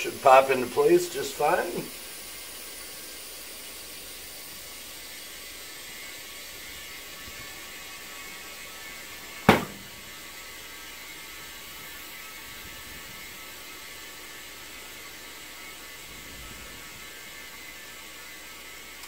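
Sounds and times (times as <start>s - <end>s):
compressed air hissing: 0.0s - 11.0s
tire bead popping: 9.3s - 10.3s.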